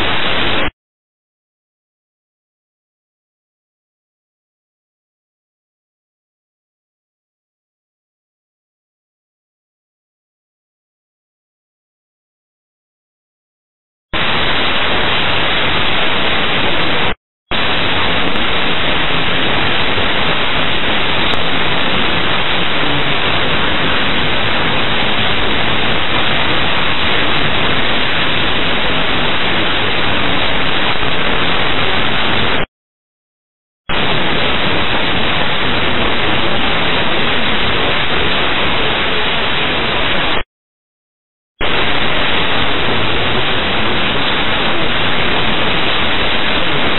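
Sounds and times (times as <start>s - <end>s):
radio static hiss: 0.0s - 0.7s, 14.2s - 32.7s, 33.9s - 40.4s, 41.6s - 46.9s.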